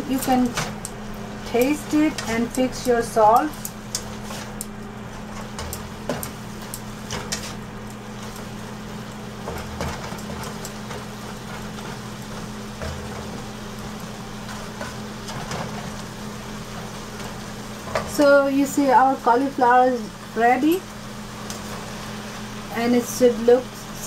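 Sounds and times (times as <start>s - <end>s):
steady low hum: 0.0s - 24.0s
spatula scraping frying pan: 7.1s - 7.6s.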